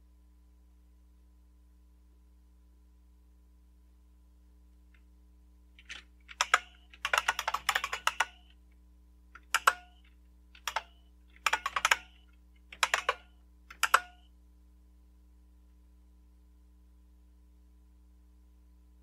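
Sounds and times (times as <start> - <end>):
clicky keyboard keystrokes: 5.8 - 8.6, 9.4 - 14.2.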